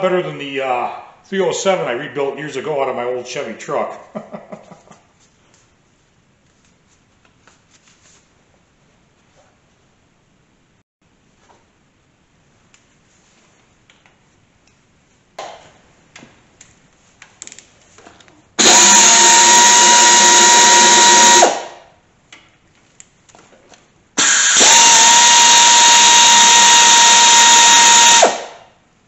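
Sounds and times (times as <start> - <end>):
pneumatic drill whining: 18.6 - 21.8, 24.2 - 28.6.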